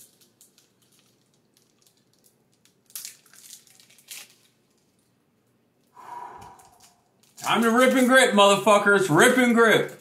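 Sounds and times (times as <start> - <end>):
foil wrapper crinkling: 0.0 - 5.2.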